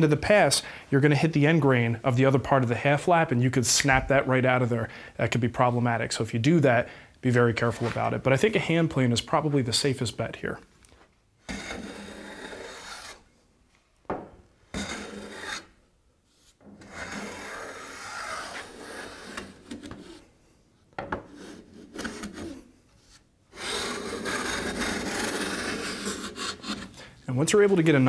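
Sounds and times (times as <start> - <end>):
hand plane shaving wood: 11.5 - 13.3, 14.7 - 15.8, 16.8 - 20.2, 23.5 - 27.1.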